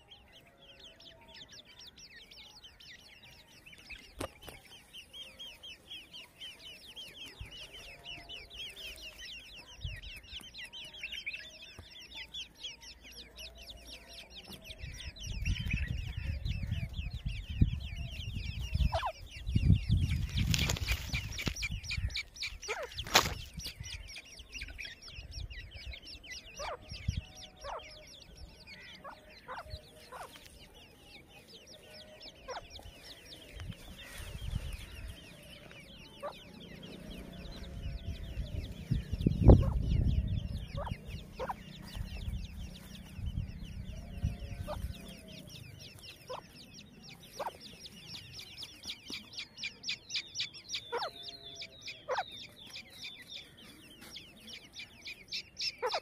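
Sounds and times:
chicks chirping: 0:00.0 - 0:56.0
hen clucking: 0:18.7 - 0:19.3, 0:34.0 - 0:43.2, 0:48.6 - 0:56.0.

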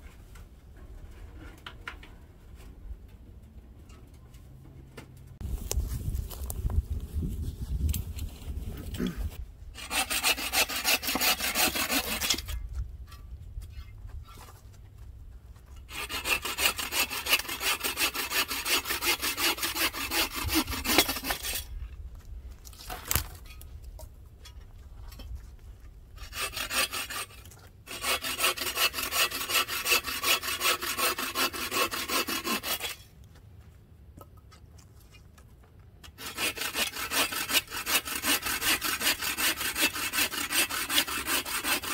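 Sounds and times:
hand saw cutting wood: 0:09.8 - 0:12.6, 0:15.8 - 0:21.8, 0:26.2 - 0:33.1, 0:36.0 - 0:41.9.

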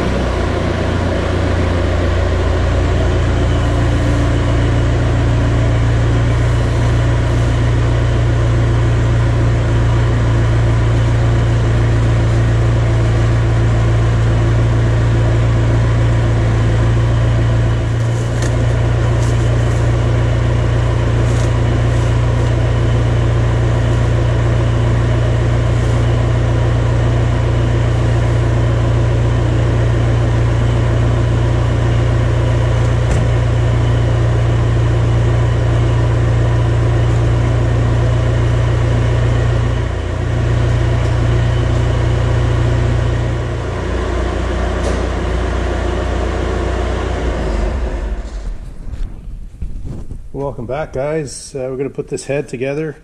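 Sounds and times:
mechanical motor hum: 0:00.0 - 0:51.7.

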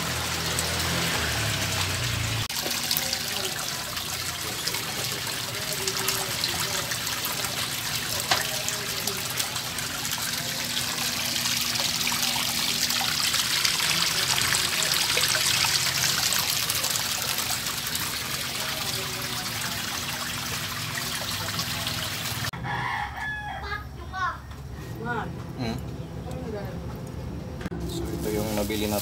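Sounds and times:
water churning and splashing: 0:00.0 - 0:22.5.

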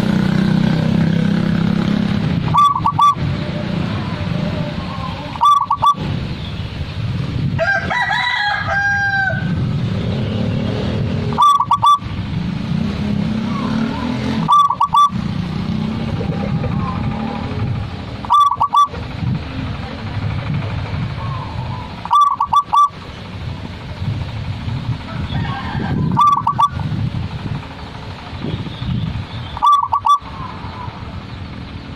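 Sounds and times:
bird high call: 0:02.5 - 0:03.3, 0:04.8 - 0:06.0, 0:11.3 - 0:12.1, 0:13.6 - 0:15.2, 0:18.2 - 0:19.0, 0:21.2 - 0:23.1, 0:26.0 - 0:26.8, 0:28.6 - 0:31.1
dove cooing: 0:02.5 - 0:06.0, 0:11.3 - 0:12.0, 0:14.4 - 0:15.2, 0:18.2 - 0:18.9, 0:21.2 - 0:23.0, 0:26.0 - 0:26.8, 0:29.6 - 0:30.9.

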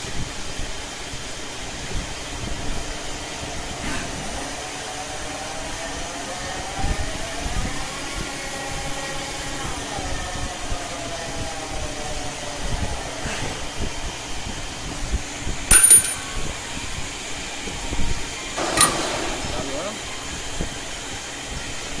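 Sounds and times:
motor whine: 0:00.0 - 0:15.7
machine mechanical hum: 0:00.0 - 0:22.0
sharp loud machine sound: 0:18.6 - 0:20.8.

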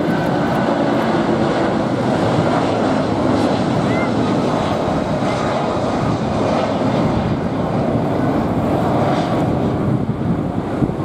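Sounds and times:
jet engines roaring: 0:00.0 - 0:11.0.

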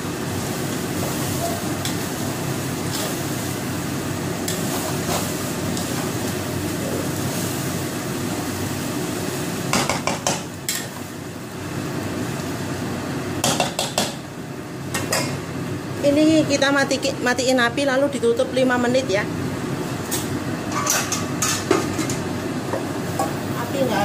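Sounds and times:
spatula clacking against wok: 0:09.7 - 0:10.9, 0:13.4 - 0:14.2.

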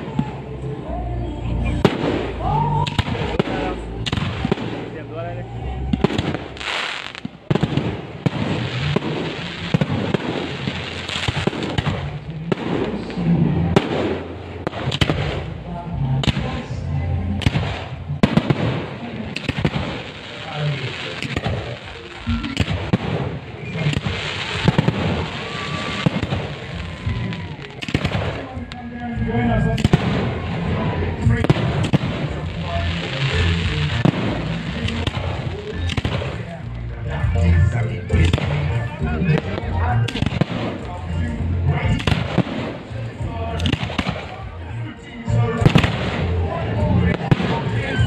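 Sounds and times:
fireworks bangs: 0:01.7 - 0:05.2, 0:05.9 - 0:29.0, 0:29.6 - 0:48.0
fireworks hiss: 0:06.2 - 0:15.5, 0:17.5 - 0:28.4, 0:31.4 - 0:36.8.

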